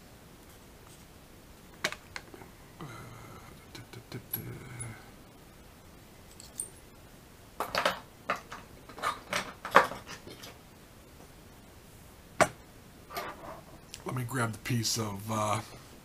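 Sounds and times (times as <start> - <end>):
tools clicking and rattling: 6.3 - 6.8.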